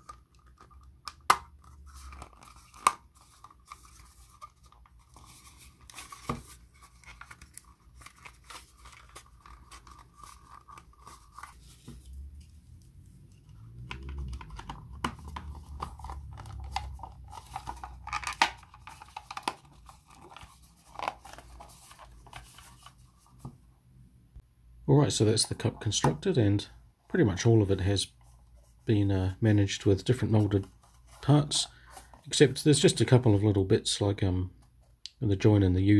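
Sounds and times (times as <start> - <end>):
plastic parts clicking and scraping: 13.3 - 23.5.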